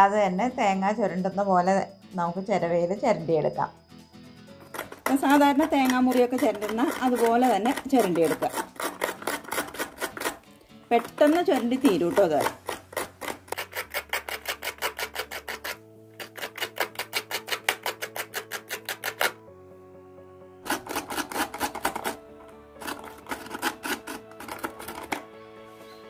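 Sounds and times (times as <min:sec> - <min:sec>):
background music: 0:00.0 - 0:26.0
rhythmic rasping of scraper: 0:04.6 - 0:19.4, 0:20.6 - 0:25.3.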